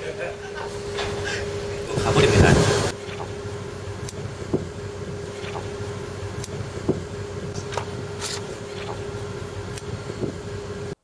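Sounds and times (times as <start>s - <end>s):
machinery and ventilation hum: 0.0s - 11.0s
clipboard pages rustling: 7.6s - 9.0s.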